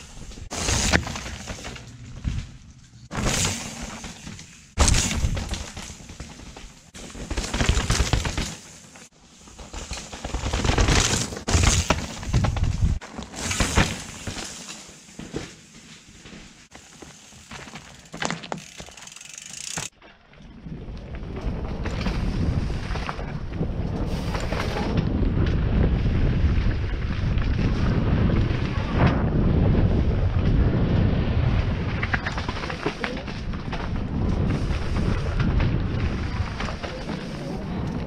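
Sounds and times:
bike tyres crunching on dirt: 0:00.0 - 0:38.0
wind buffeting camera: 0:11.4 - 0:13.0, 0:20.5 - 0:38.0.

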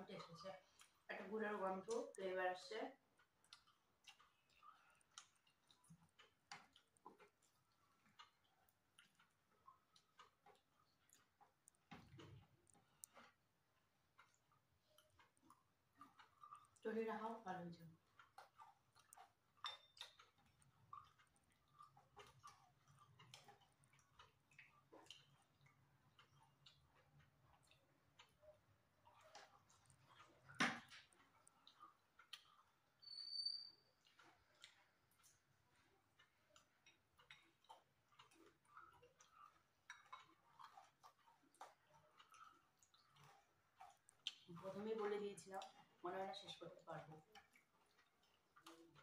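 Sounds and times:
chewing noises: 0:00.0 - 0:49.0.

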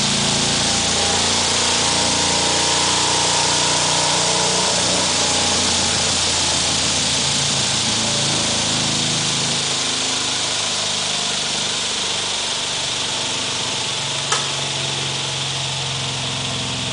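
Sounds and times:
pitching machine motor whirring: 0:10.9 - 0:16.9
sharp click: 0:14.3 - 0:14.6.

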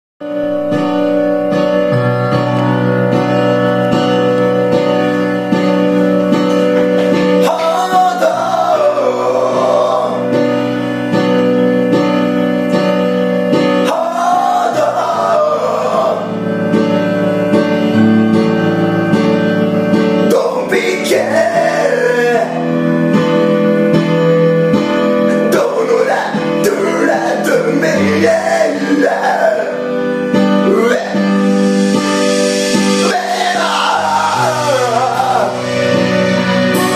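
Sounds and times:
backing track with guitar: 0:00.2 - 0:09.2, 0:10.0 - 0:36.9
man singing into microphone: 0:07.3 - 0:10.4, 0:13.6 - 0:16.5, 0:20.2 - 0:22.8, 0:25.3 - 0:31.5, 0:32.7 - 0:36.1.

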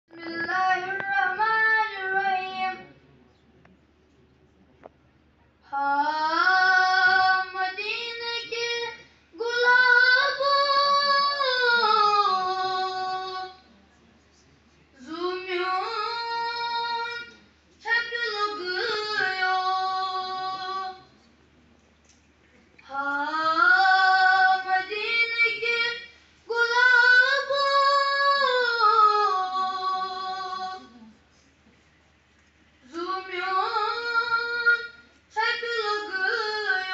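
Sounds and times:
boy singing unaccompanied: 0:00.1 - 0:02.9, 0:05.7 - 0:13.7, 0:15.0 - 0:21.2, 0:22.8 - 0:31.2, 0:32.8 - 0:36.9.

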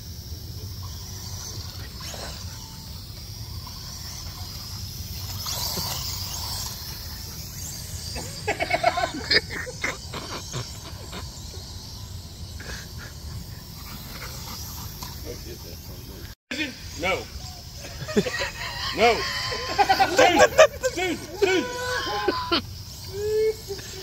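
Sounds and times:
toy drone rotors whining: 0:00.0 - 0:24.0.

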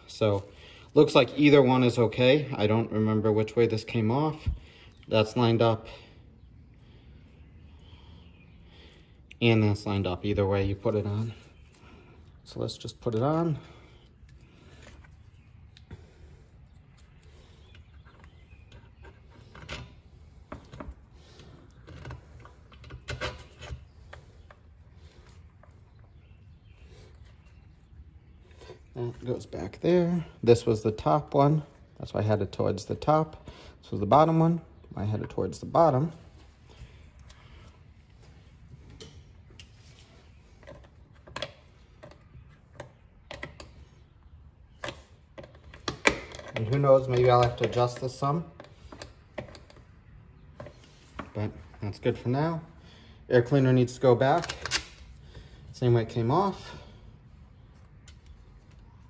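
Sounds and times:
clicks and knocks of parts: 0:44.8 - 0:49.9, 0:54.3 - 0:55.2.

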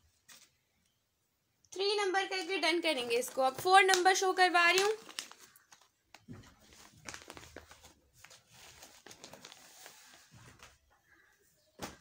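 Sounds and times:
plastic packet crinkling: 0:02.8 - 0:10.8.

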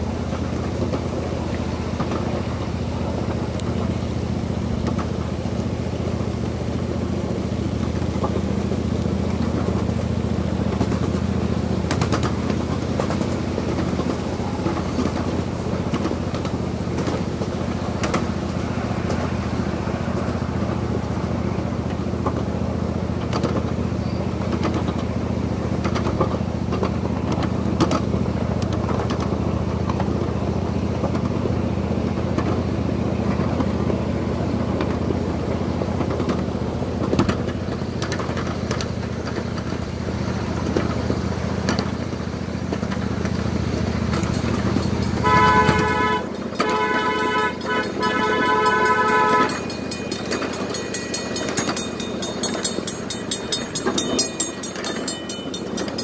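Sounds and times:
miniature train rumbling: 0:00.0 - 0:56.0
train horn blasts: 0:44.4 - 0:55.6.

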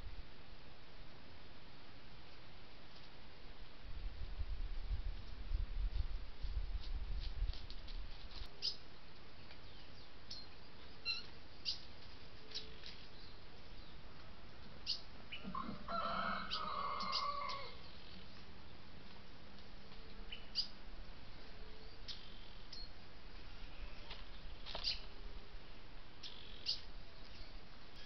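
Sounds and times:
wild birds chirping: 0:08.5 - 0:28.0.

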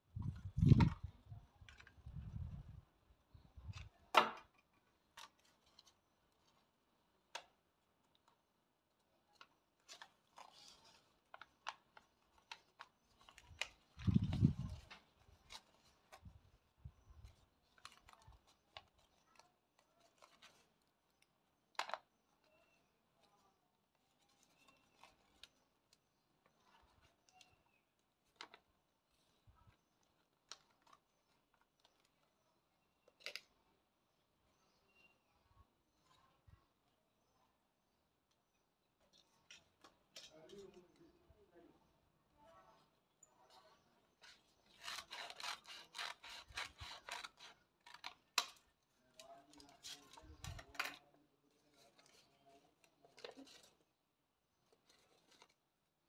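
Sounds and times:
stiff paper rustling: 0:44.2 - 0:48.4.

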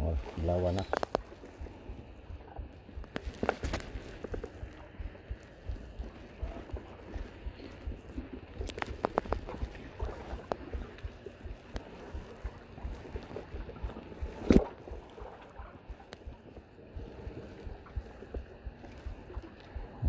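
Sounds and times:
low rumble: 0:00.0 - 0:20.0
fishing line handling clicks: 0:08.6 - 0:09.5.

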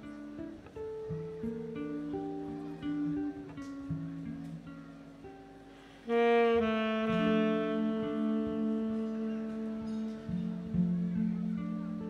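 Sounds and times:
electric guitar soft notes: 0:00.0 - 0:12.0
horns playing held notes: 0:06.1 - 0:10.8.

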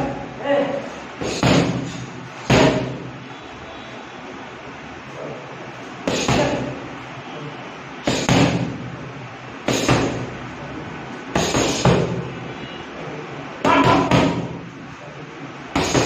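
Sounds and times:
boxing gloves smacking mitts: 0:01.2 - 0:03.0, 0:08.1 - 0:08.8, 0:09.7 - 0:10.3, 0:11.4 - 0:12.2, 0:15.8 - 0:16.0.

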